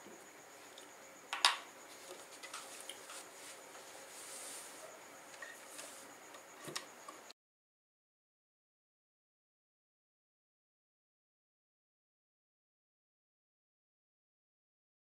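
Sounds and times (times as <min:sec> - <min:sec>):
cloth rustling: 0:01.9 - 0:06.1.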